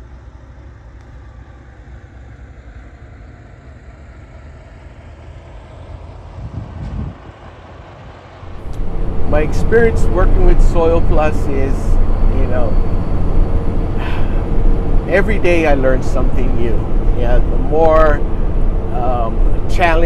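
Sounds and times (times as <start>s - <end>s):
truck engine and road rumble: 0.0s - 20.0s.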